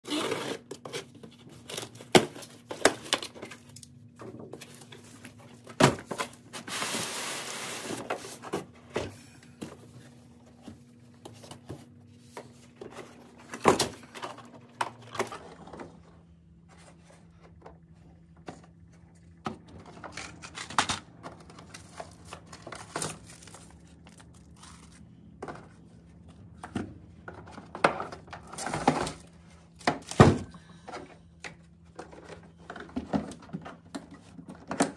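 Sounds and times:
packaging crinkling and tearing: 21.4s - 25.0s.

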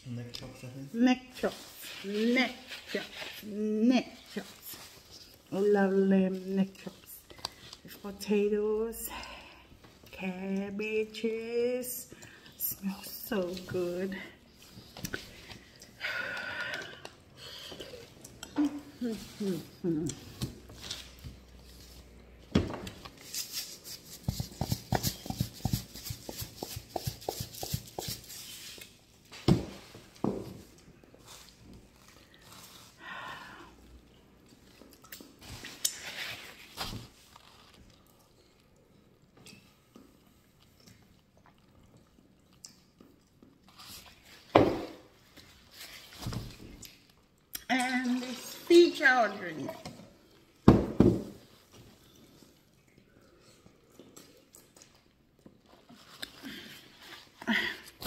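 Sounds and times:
shaker knocking: 23.3s - 28.4s.

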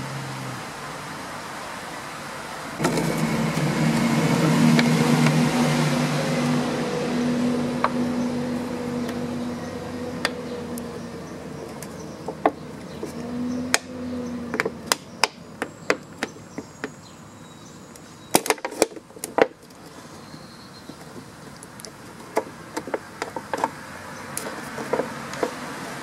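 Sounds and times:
low steady hum: 2.8s - 15.6s.

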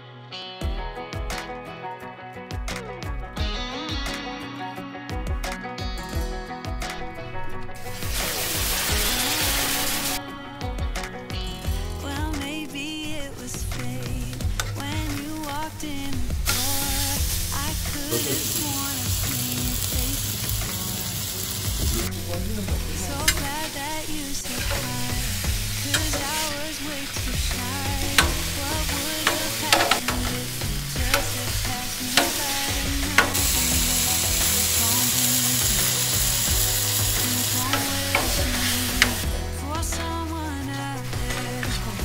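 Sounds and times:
chicken and onions sizzling on griddle: 7.8s - 10.2s, 11.5s - 42.0s
metal spatula scraping griddle: 22.9s - 36.3s
spatula tapping griddle: 23.1s - 39.2s.

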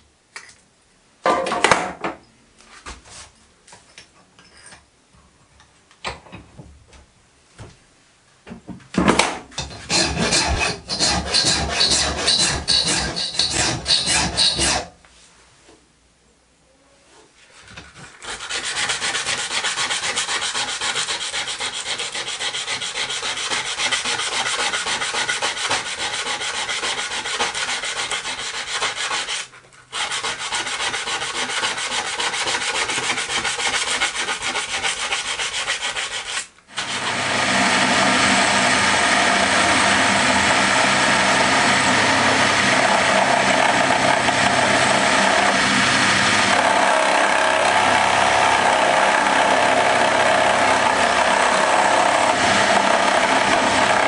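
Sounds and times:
milling machine cutting metal: 9.6s - 14.9s, 36.8s - 54.0s
part scraping on abrasive sheet: 9.6s - 15.0s.

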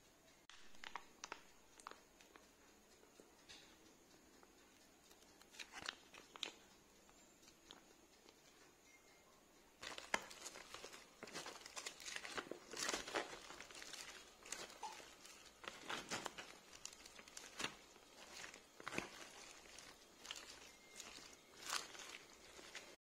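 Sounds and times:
salad leaves rustling: 9.8s - 23.0s.

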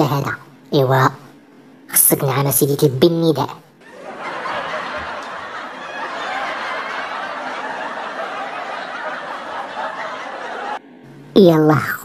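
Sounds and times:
crowd laughing: 3.8s - 10.8s.

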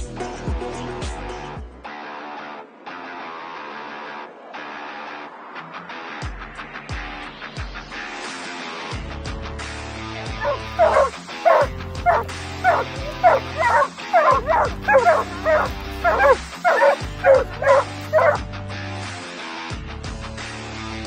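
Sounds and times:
background music: 10.3s - 18.6s
hound barking: 10.4s - 18.4s.

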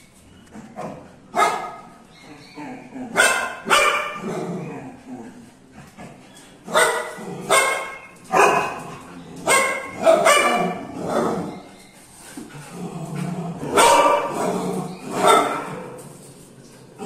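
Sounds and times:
dog barking: 1.3s - 1.9s, 3.1s - 4.3s, 6.7s - 11.4s, 13.7s - 15.8s.

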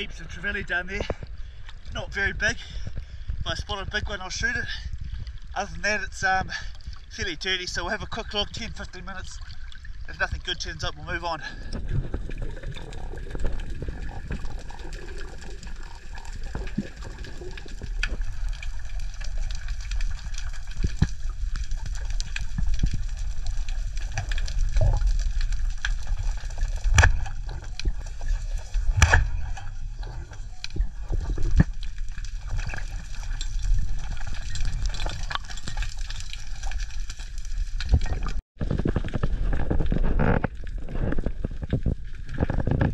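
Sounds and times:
underwater water rush: 5.0s - 42.6s
sharp underwater clicks: 12.4s - 38.4s.

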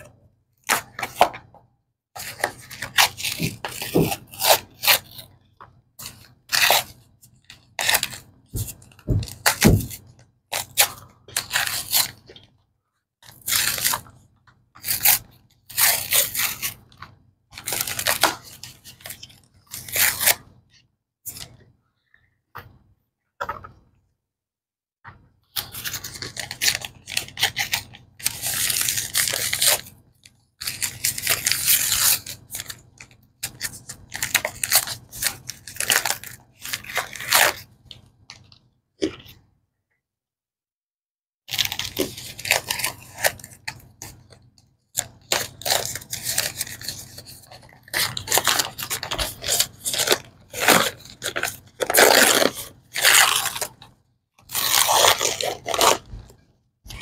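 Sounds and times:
paper and plastic wrapping crinkling: 45.2s - 53.9s, 54.5s - 56.3s.

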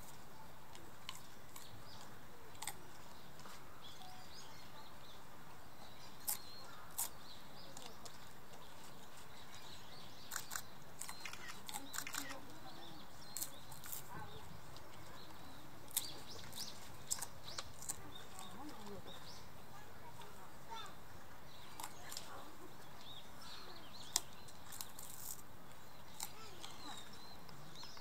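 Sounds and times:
birds chirping: 0.0s - 28.0s
chatter of visitors: 0.0s - 28.0s
sharp clicks: 10.3s - 12.5s.

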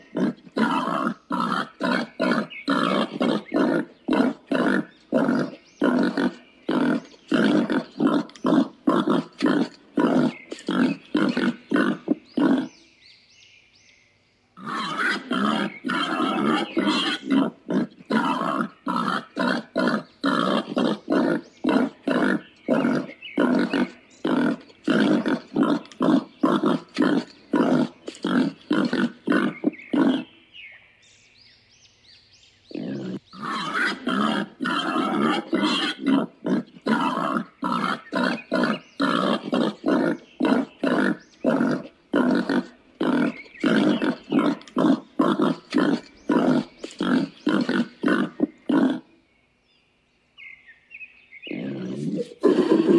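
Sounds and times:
warthog grunting while feeding: 0.0s - 12.8s, 14.6s - 30.3s, 32.7s - 49.1s, 51.5s - 52.9s.

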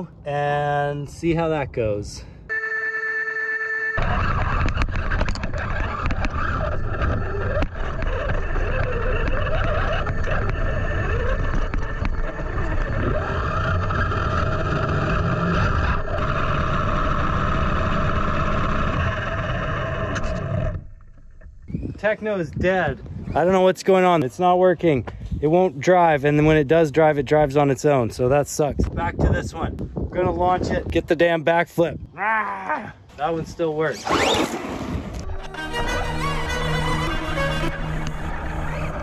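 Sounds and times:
toy truck motor whine: 2.5s - 20.8s, 35.4s - 39.0s.

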